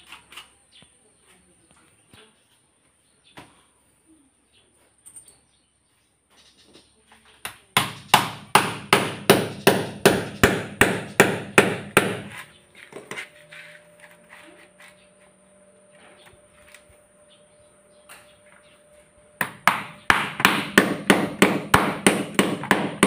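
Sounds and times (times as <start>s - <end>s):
hammer striking nail into wood: 7.8s - 12.4s, 19.4s - 23.0s.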